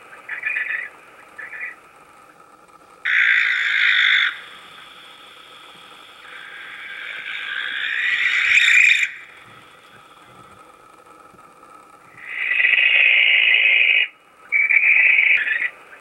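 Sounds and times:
barn owl screeching: 0:00.0 - 0:01.8, 0:03.1 - 0:05.4, 0:06.1 - 0:09.9, 0:12.1 - 0:15.8.

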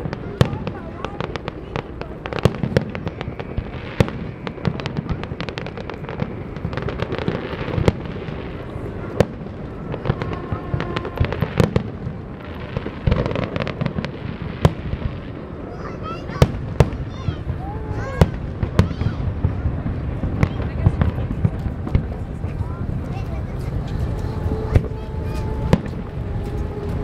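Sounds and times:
fireworks bursting: 0:00.0 - 0:27.0
low rumble: 0:17.4 - 0:27.0.

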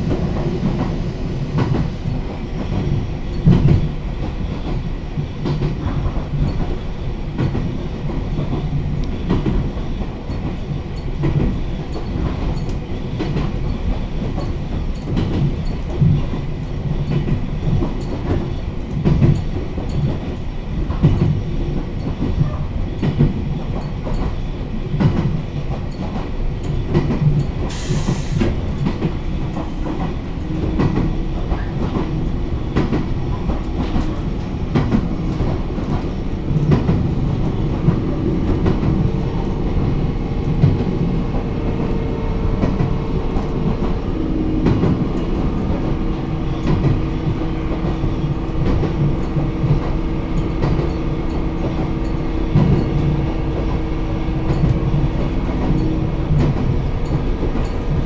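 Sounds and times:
rail-joint clicks: 0:00.0 - 0:58.0
train wheels rumbling on rail: 0:00.0 - 0:58.0
short hiss: 0:27.7 - 0:28.6.

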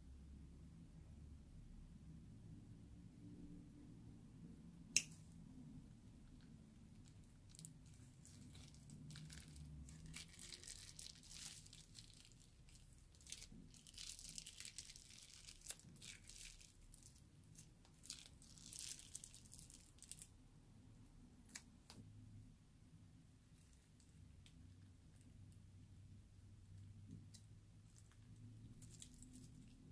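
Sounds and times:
plastic piping bag crinkling: 0:06.4 - 0:20.3, 0:27.1 - 0:29.9.

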